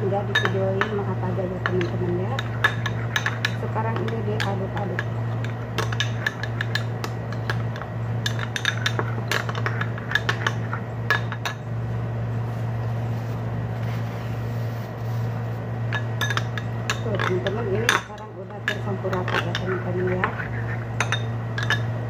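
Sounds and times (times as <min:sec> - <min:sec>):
low hum: 0:00.0 - 0:22.0
metal spoon clinking on glass bowl: 0:00.2 - 0:11.6, 0:15.9 - 0:21.9.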